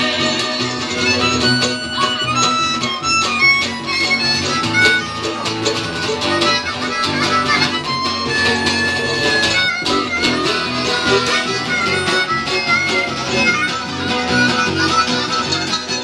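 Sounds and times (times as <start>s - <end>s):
fast string instrument lead: 0.0s - 16.0s
harmonica: 0.0s - 16.0s
strummed acoustic guitars: 0.0s - 16.0s.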